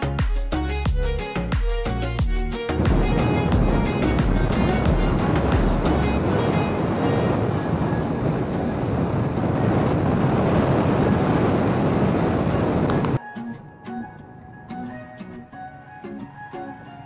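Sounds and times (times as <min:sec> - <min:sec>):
wind on microphone: 0:02.8 - 0:13.2.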